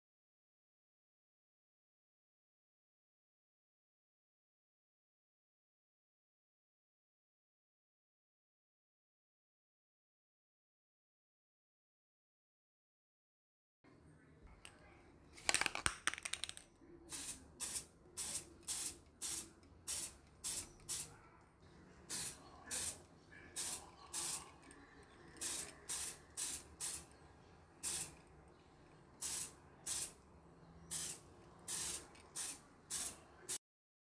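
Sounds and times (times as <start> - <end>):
aerosol spray can hissing: 16.3 - 21.1, 22.1 - 23.0, 23.6 - 24.5, 25.4 - 27.1, 27.8 - 28.2, 29.2 - 30.2, 30.9 - 33.6.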